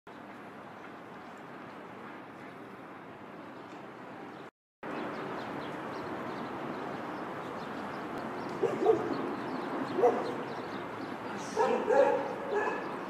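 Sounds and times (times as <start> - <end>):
street background noise: 0.1 - 13.0
dog barking: 8.6 - 9.1, 10.0 - 10.4, 11.6 - 12.9.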